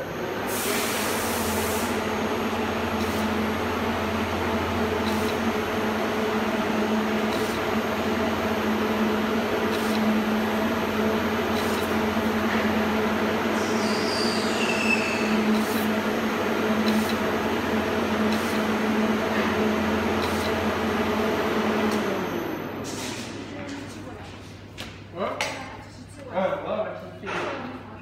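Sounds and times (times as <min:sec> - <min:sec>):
motor and conveyor hum: 0:00.0 - 0:25.1
high squeal: 0:13.6 - 0:15.5.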